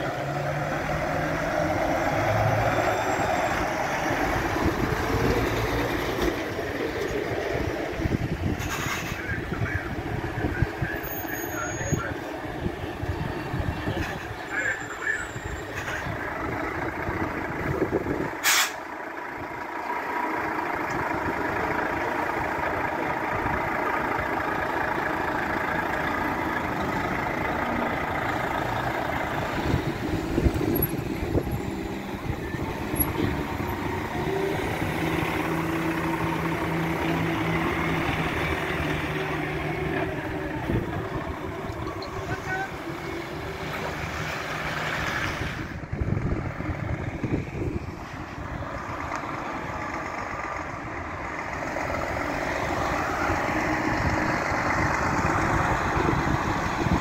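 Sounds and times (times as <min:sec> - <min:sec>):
truck diesel engines running: 0:00.0 - 0:57.0
air-brake hiss: 0:18.4 - 0:18.8.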